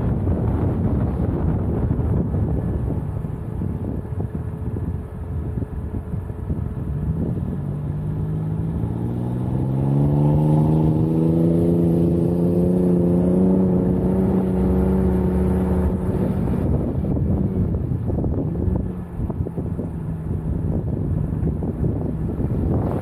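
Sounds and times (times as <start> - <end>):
wind noise on microphone: 0.0 - 23.0
car engine revving: 6.9 - 23.0.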